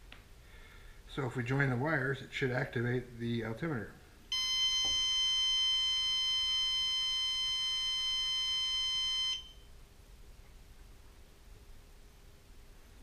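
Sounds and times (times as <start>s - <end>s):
high-pitched piezo beep: 4.3s - 9.6s.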